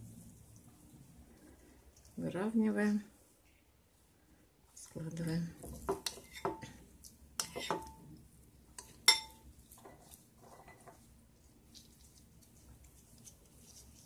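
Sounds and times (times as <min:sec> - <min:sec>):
spoon clinking ceramic bowl: 0:08.8 - 0:09.5.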